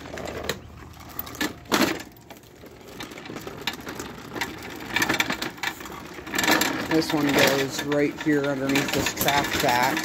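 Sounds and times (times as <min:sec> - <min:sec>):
push mower rattling on concrete: 0:00.0 - 0:10.0.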